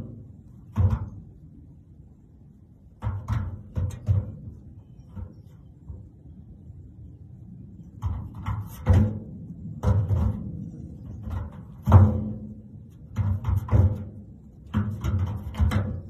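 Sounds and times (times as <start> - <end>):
hooves thumping on metal tank lid: 0.0 - 1.4, 3.0 - 5.6, 8.0 - 16.0.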